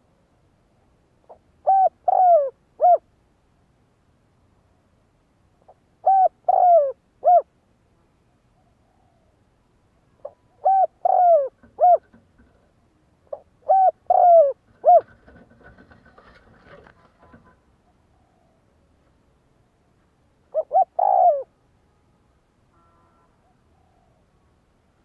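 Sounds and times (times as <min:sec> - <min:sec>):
dove cooing: 0:01.3 - 0:03.0, 0:05.7 - 0:07.5, 0:10.2 - 0:12.6, 0:13.3 - 0:18.8, 0:20.5 - 0:21.6, 0:23.1 - 0:24.5
faint scratchy rustling: 0:14.6 - 0:18.2.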